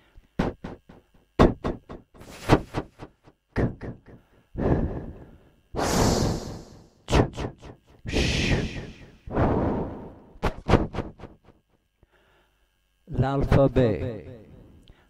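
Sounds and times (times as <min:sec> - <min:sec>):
man pronouncing consonant sounds: 0:03.5 - 0:04.2, 0:07.1 - 0:09.2.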